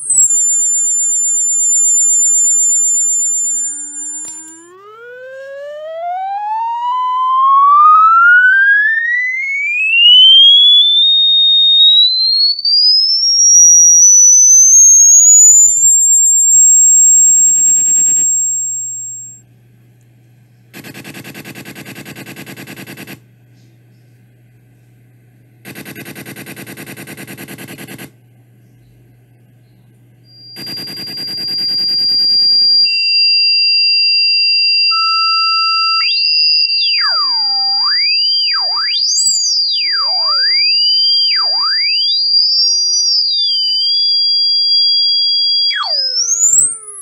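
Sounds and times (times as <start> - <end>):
rapid buzzing pulses: 0.0 - 19.4, 20.7 - 23.4, 25.6 - 28.2, 30.3 - 33.0
low electronic hum: 0.0 - 33.1, 34.7 - 47.0
rising whistling tone: 5.7 - 19.4, 34.8 - 47.0.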